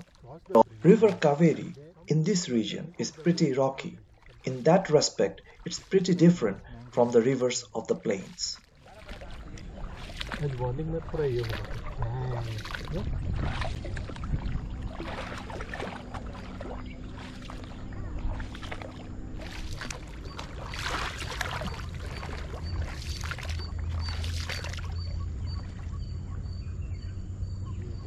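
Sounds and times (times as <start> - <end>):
paddle strokes splashing in water: 0.0 - 26.4
steady low rumble: 8.9 - 28.0.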